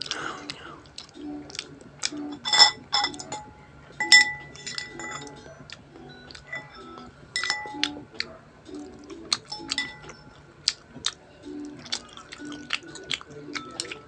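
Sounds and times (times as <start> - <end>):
fork and knife clinking on plate: 2.3 - 5.4, 6.4 - 8.0, 9.4 - 10.2.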